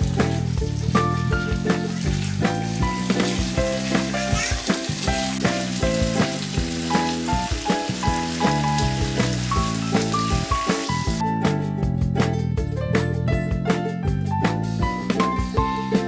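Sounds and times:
potato slices sizzling in oil: 0:00.0 - 0:11.2
background music with steady beat: 0:00.0 - 0:16.0.

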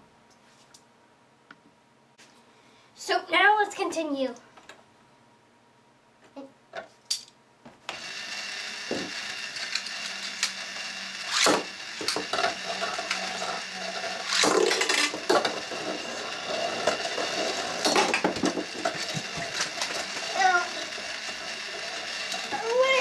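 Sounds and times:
motorized stadium whirring: 0:07.9 - 0:23.0
spinning tops clacking: 0:07.9 - 0:23.0.

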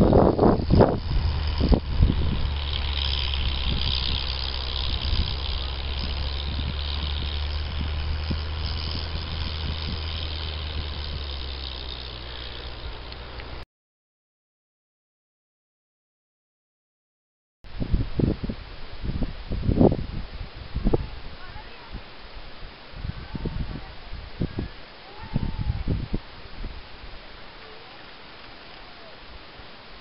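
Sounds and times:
steady low rumble: 0:00.0 - 0:13.6
wind buffeting microphone: 0:00.0 - 0:13.6, 0:17.7 - 0:27.3.

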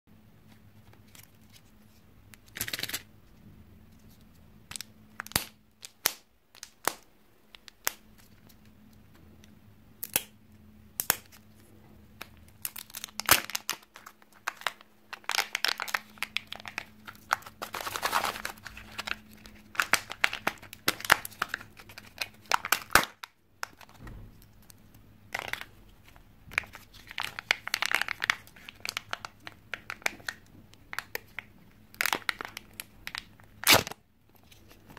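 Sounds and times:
foil crinkling and tearing: 0:12.6 - 0:24.0, 0:25.4 - 0:34.9.

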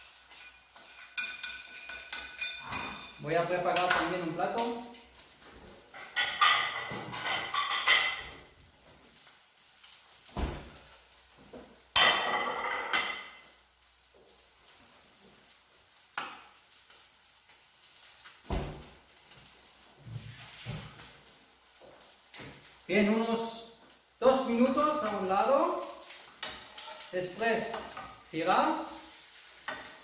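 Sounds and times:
fish frying in a pan: 0:00.0 - 0:30.0.

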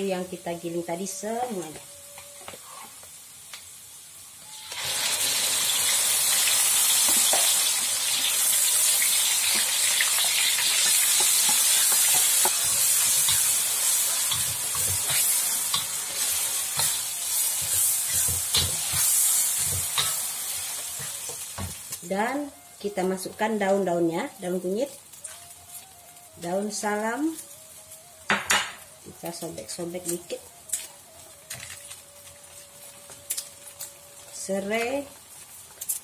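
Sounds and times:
paste sizzling in hot oil: 0:02.6 - 0:23.4
spatula scraping a wok: 0:04.7 - 0:21.9.

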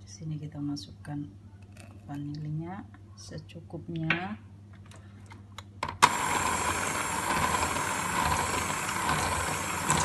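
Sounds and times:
electric hand mixer whining: 0:06.0 - 0:10.0.

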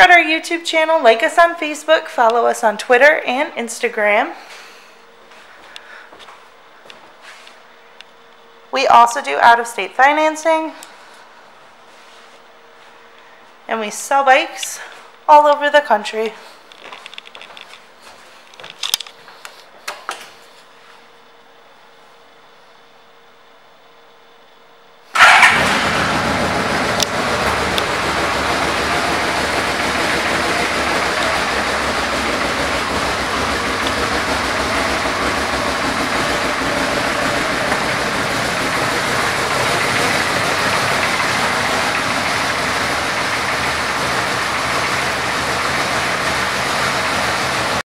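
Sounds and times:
motorcycle engine starting and idling: 0:25.1 - 0:47.8.

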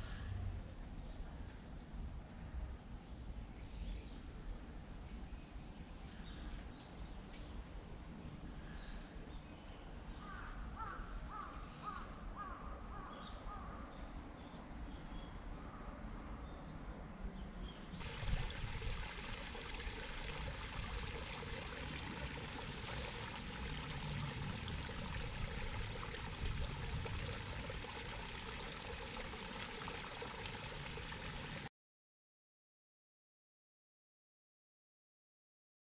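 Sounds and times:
shallow stream running: 0:17.9 - 0:31.7.

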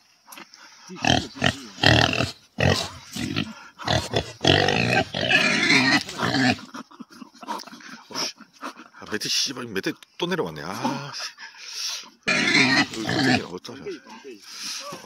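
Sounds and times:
person snorting and grunting: 0:01.0 - 0:06.7.

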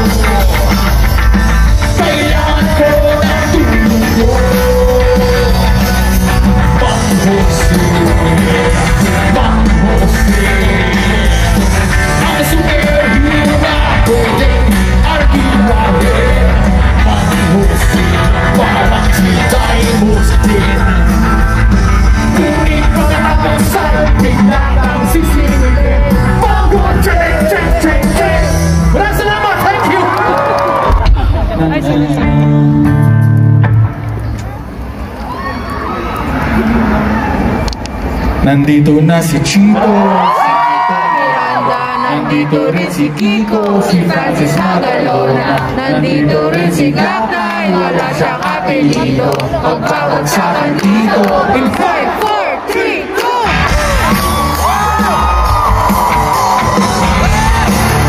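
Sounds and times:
lead singer singing: 0:00.0 - 0:29.5, 0:39.4 - 0:58.0
live rock band playing: 0:00.0 - 0:35.1, 0:53.5 - 0:58.0.

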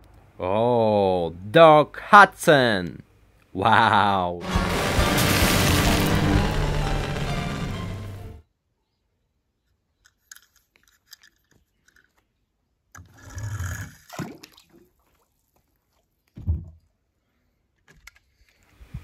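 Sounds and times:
toy cars tapping and scraping: 0:10.0 - 0:12.4.

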